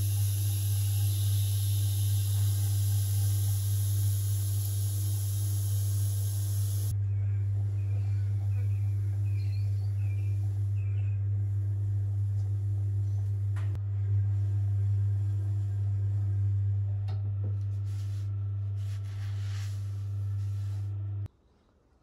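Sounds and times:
brushing hiss: 0:00.0 - 0:06.9
pottery wheel motor humming: 0:00.0 - 0:21.3.

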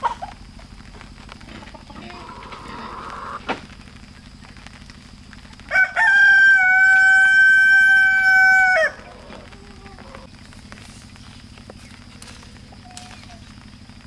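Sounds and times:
rooster crowing: 0:05.7 - 0:10.3.

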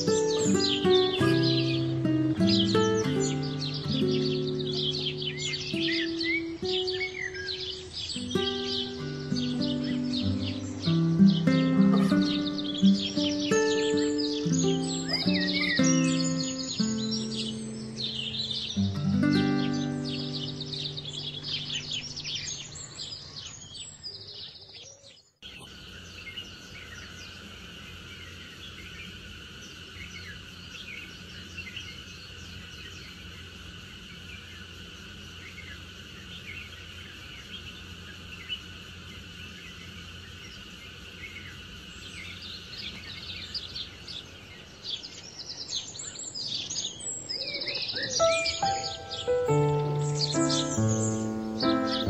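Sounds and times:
music with bird calls: 0:00.0 - 0:23.0, 0:47.3 - 0:52.0
birds chirping: 0:00.0 - 0:52.0
insects droning: 0:00.0 - 0:52.0.

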